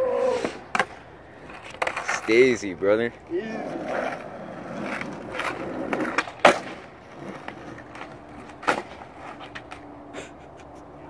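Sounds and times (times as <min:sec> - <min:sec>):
skateboard wheels rolling on concrete: 0:00.0 - 0:11.0
skateboard clacking on ground: 0:00.4 - 0:09.9.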